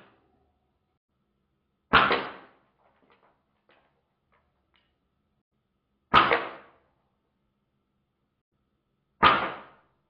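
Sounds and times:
air rifle shot: 0:01.9 - 0:02.6, 0:06.1 - 0:06.8, 0:09.2 - 0:09.9
pellet striking plastic: 0:01.9 - 0:03.9, 0:09.2 - 0:09.9.

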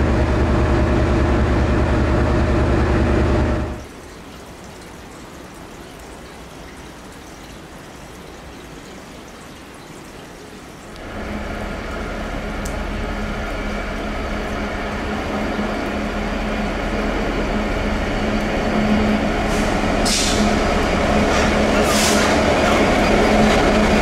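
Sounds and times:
diesel locomotive engine drone: 0:00.0 - 0:03.9, 0:11.0 - 0:24.0.

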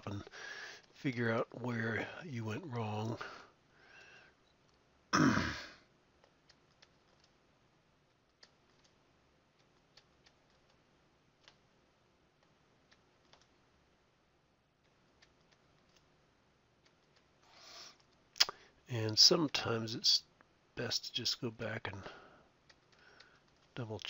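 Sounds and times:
short breath: 0:00.3 - 0:00.9, 0:03.2 - 0:04.4, 0:22.0 - 0:23.4.

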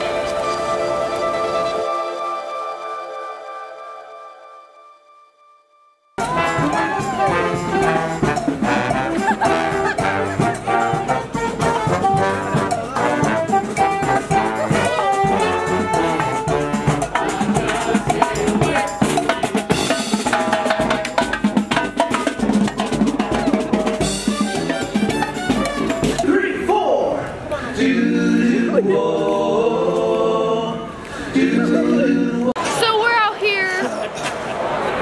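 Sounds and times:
marching brass band playing: 0:00.0 - 0:04.9, 0:06.2 - 0:26.6
steady drum beat: 0:06.2 - 0:26.6.

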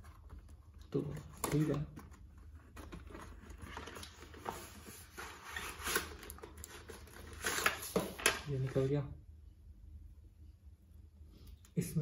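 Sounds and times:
cardboard rustling and scraping: 0:00.0 - 0:08.9.

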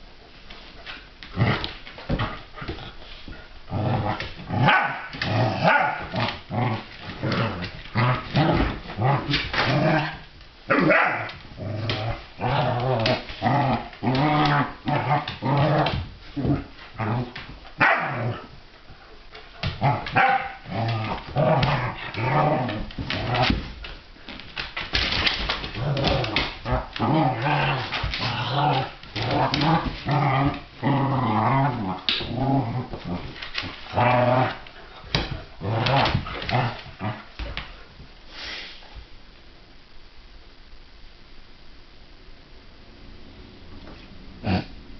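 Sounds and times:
dogs growling and barking: 0:03.7 - 0:18.6, 0:19.6 - 0:23.7, 0:25.4 - 0:37.5.

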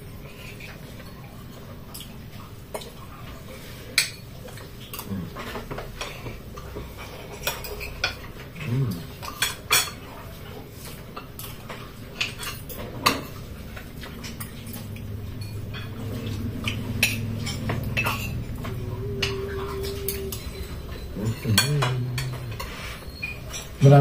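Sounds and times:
cutlery clinking on plates: 0:03.9 - 0:24.0.

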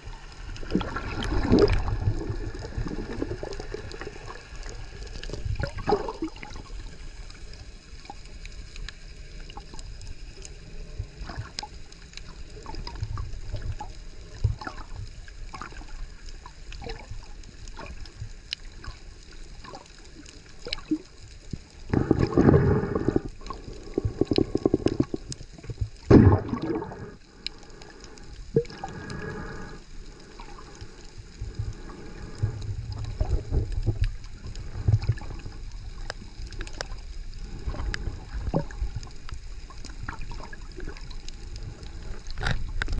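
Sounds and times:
water rushing and bubbling: 0:00.0 - 0:42.9
faint clicks: 0:07.0 - 0:26.1, 0:27.2 - 0:42.9
muffled underwater noise: 0:21.6 - 0:42.9.

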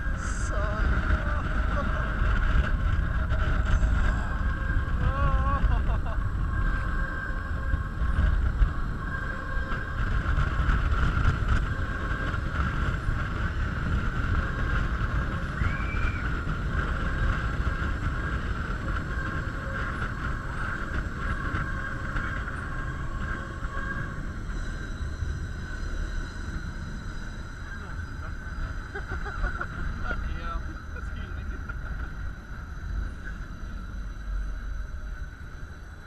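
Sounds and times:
two-note mechanical whine: 0:00.0 - 0:36.0
wind rumbling over camera: 0:00.0 - 0:36.0
rising-and-falling whistle: 0:15.2 - 0:17.2.

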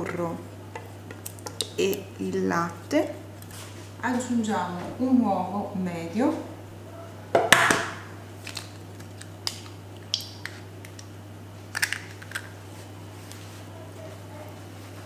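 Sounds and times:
steady low hum: 0:00.0 - 0:15.0
biscuits snapping: 0:08.4 - 0:12.6.

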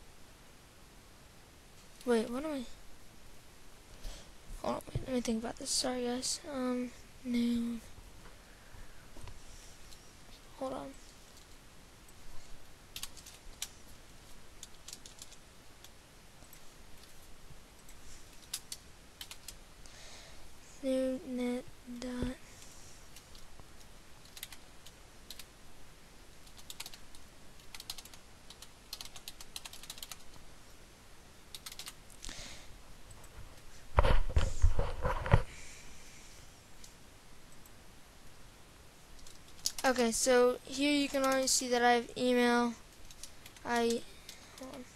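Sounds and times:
computer keyboard typing: 0:13.0 - 0:13.7, 0:14.6 - 0:15.4, 0:18.4 - 0:19.6, 0:24.2 - 0:25.5, 0:26.4 - 0:30.4, 0:31.5 - 0:32.0, 0:41.0 - 0:41.5.

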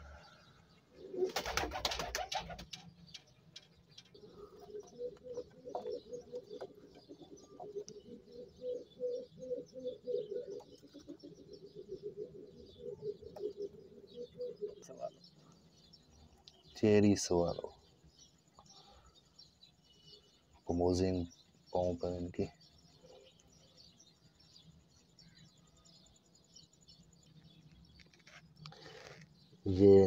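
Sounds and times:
pigeons cooing: 0:00.0 - 0:16.3.

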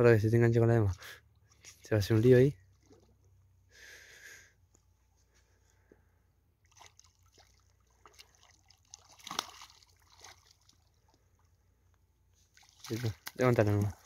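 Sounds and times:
water sloshing and dripping: 0:00.6 - 0:03.6, 0:06.6 - 0:14.0
water splash: 0:06.6 - 0:11.0, 0:12.5 - 0:14.0.

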